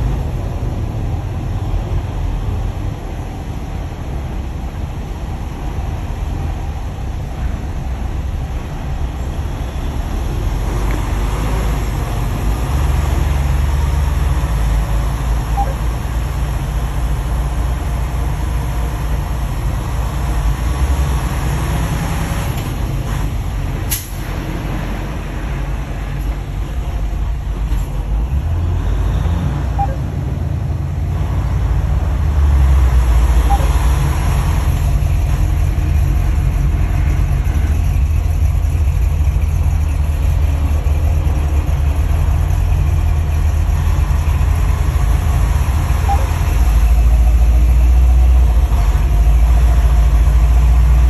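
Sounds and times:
road noise: 0.0 - 51.0
vehicle engine rumble: 0.0 - 51.0
sharp click: 23.9 - 24.2.

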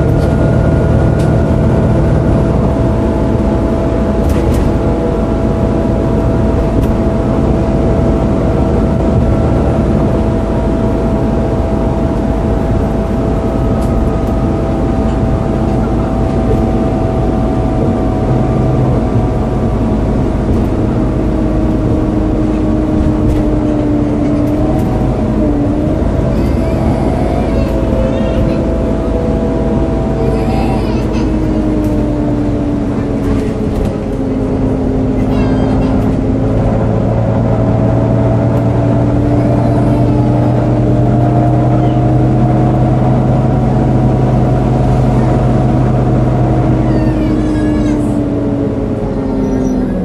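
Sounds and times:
cooling fan whine: 0.0 - 50.0
engine and road rumble: 0.0 - 50.0.

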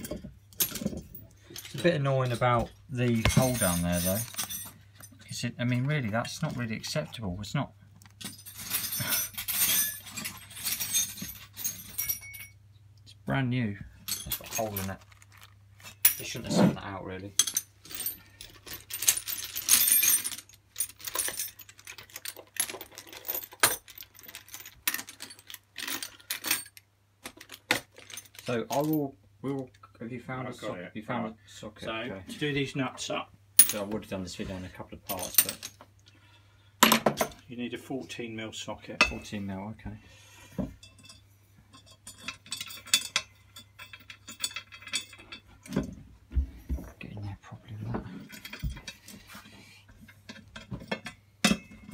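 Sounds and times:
metal tools clinking and rattling: 0.0 - 6.7, 8.0 - 12.6, 14.0 - 29.1, 33.6 - 35.9, 39.0 - 39.4, 40.6 - 46.0, 47.9 - 51.9.

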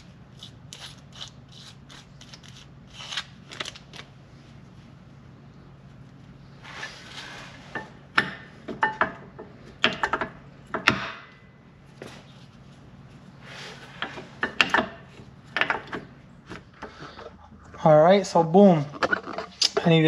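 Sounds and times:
brake pads scraping: 6.4 - 8.0, 12.0 - 17.9.

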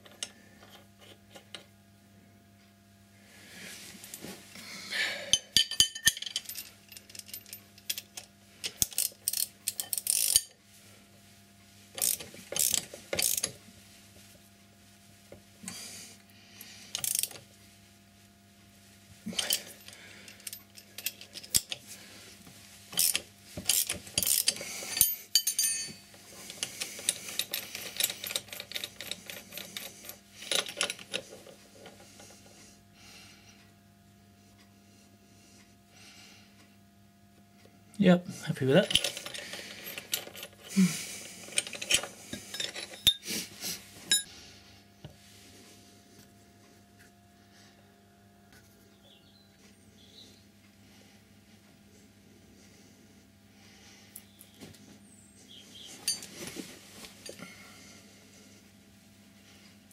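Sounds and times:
ratchet spanner clicking: 7.0 - 10.5, 12.0 - 13.5, 17.0 - 17.4, 23.0 - 25.6.

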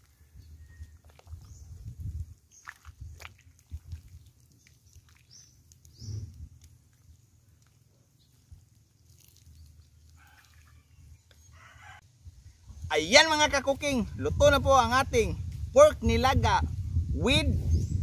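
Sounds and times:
wind on microphone: 0.1 - 4.3, 5.9 - 6.6, 12.2 - 18.0
bird chirps: 4.5 - 11.6.

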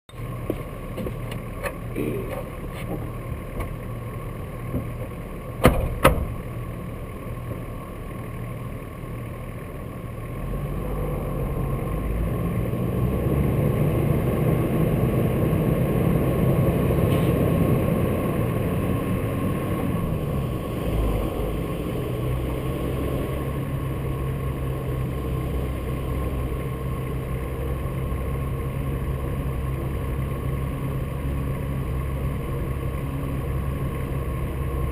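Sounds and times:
four-wheel drive engine running: 0.1 - 34.9
sharp knocks: 5.6 - 6.4.

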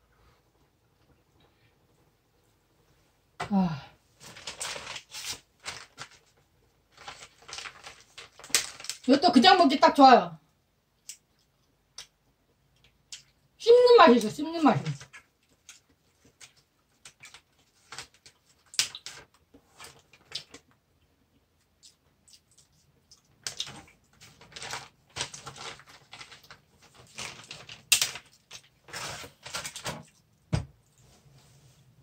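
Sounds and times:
rice paper crackling when chewed: 4.2 - 9.1, 14.9 - 20.8, 21.7 - 30.2.

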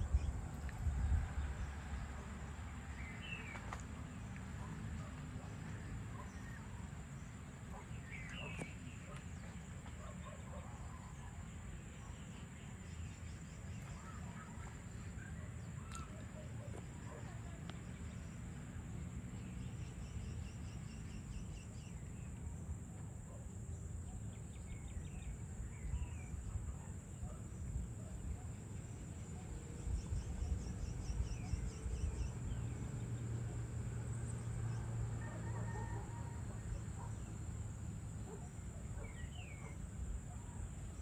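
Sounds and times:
birds chirping: 2.8 - 18.3.

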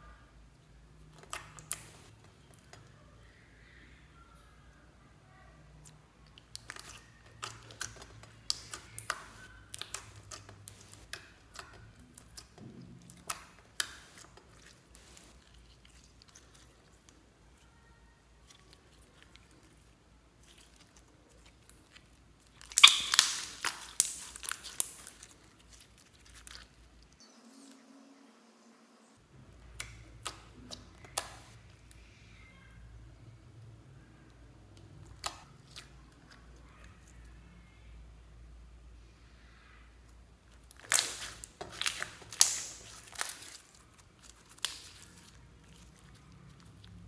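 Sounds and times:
slime popping and crackling: 1.0 - 2.9, 6.2 - 27.2, 29.6 - 32.0, 34.8 - 36.8, 40.5 - 47.0.

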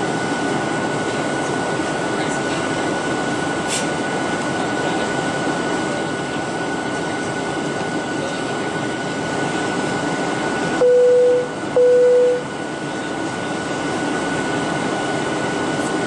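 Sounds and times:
airliner cabin drone: 0.0 - 16.0.

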